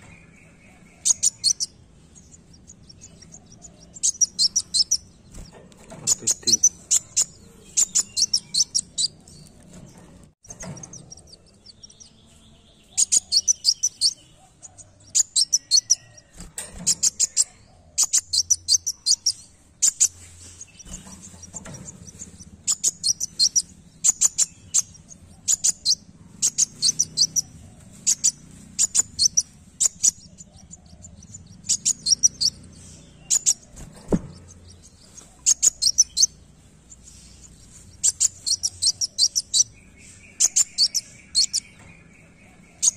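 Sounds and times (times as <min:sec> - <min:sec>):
bird singing high sharp notes: 0:06.1 - 0:09.2.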